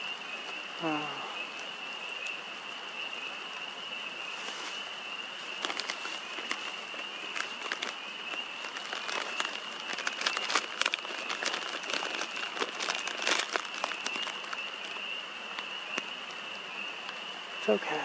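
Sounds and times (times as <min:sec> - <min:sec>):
crackling and crunching clicks: 0:05.6 - 0:16.1.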